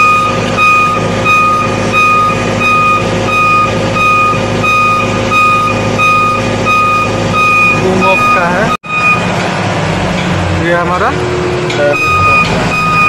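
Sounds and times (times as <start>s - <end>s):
motion alarm beeping: 0.0s - 9.3s, 11.9s - 13.0s
engine humming: 0.0s - 13.0s.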